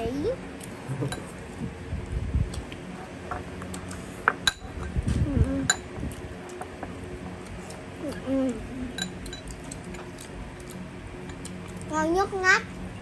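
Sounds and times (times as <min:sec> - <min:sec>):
utensils clinking on ceramic bowls: 0:09.0 - 0:10.0.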